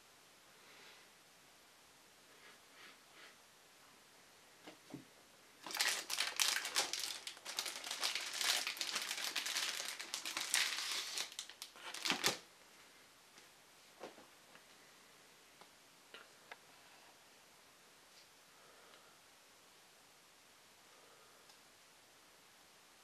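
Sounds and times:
plastic bag crinkling: 5.6s - 12.5s.

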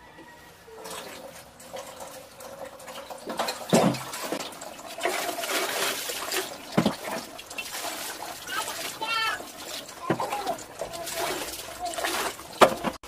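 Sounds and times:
water splashing into toilet bowl: 0.7s - 13.0s.

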